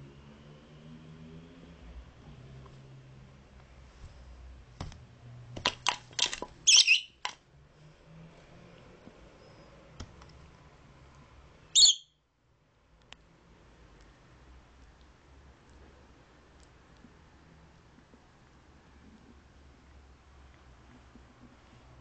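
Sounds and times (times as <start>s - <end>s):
parrot high-pitched calls: 6.6s - 7.2s, 11.7s - 12.2s.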